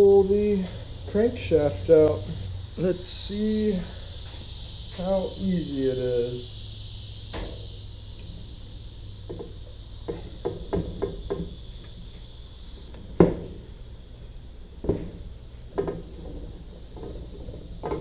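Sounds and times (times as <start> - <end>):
steady low hum: 0.0 - 18.0
metal knocks and clunks: 9.2 - 11.5, 13.1 - 13.7, 14.8 - 18.0.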